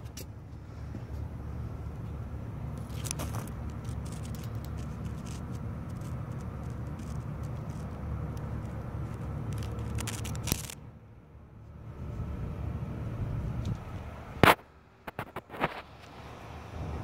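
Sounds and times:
engine rumbling: 0.0 - 17.0
phone handling clicks and scraping: 2.8 - 10.8.

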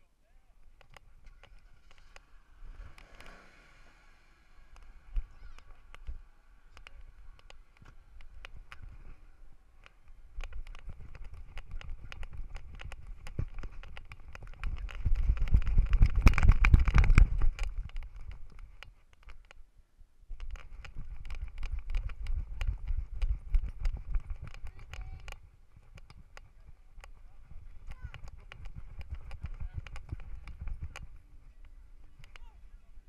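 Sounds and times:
camera thumping from running dog: 9.8 - 19.5, 20.4 - 32.5.

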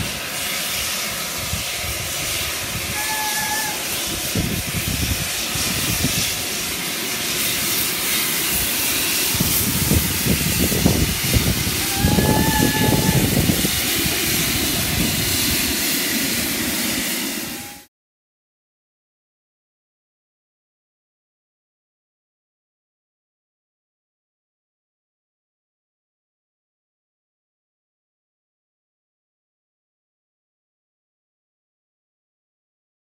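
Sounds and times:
steam hissing: 0.0 - 17.9
faint whistle tones: 3.0 - 3.8.

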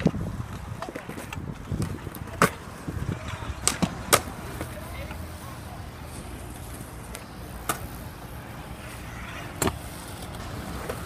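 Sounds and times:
scooter clacks: 0.0 - 5.2
scooter wheels rolling on concrete: 0.0 - 11.0.

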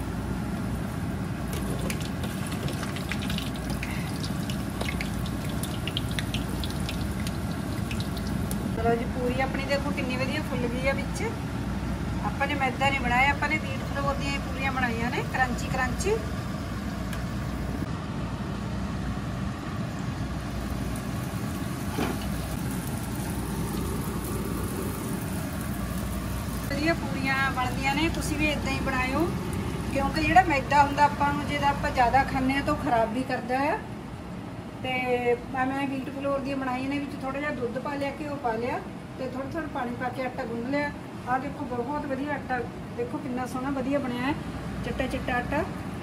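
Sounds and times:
dough deep-frying sizzle: 0.0 - 9.7, 18.6 - 32.9
low steady hum: 0.0 - 46.0.

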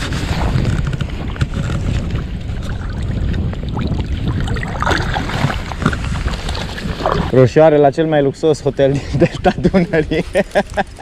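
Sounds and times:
wind buffeting microphone: 0.0 - 11.0
water lapping: 1.5 - 7.4
small water splashes: 2.5 - 7.3.

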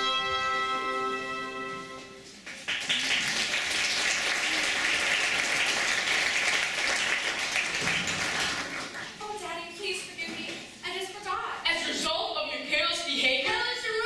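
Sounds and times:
audience applauding: 2.3 - 9.2.

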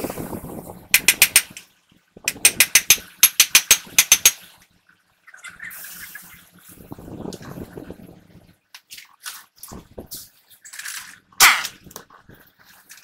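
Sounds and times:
sharp metallic clicks: 1.0 - 1.6, 2.3 - 4.4.

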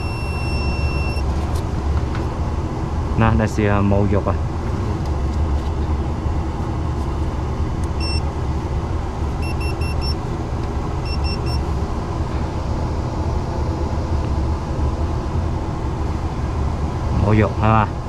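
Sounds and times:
voltage tester beeps: 0.0 - 1.2, 8.0 - 8.2, 9.4 - 10.2, 11.0 - 11.6.

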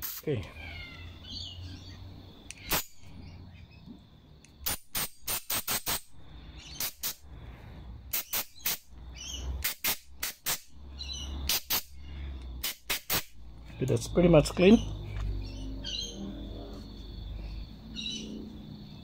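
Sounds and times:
aerosol spray hissing bursts: 0.0 - 0.3, 6.7 - 7.3, 8.1 - 8.9, 12.6 - 13.4.

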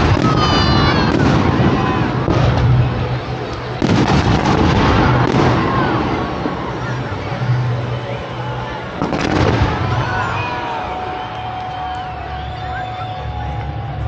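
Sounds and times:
fireworks bursting: 0.0 - 7.8, 8.9 - 10.7.

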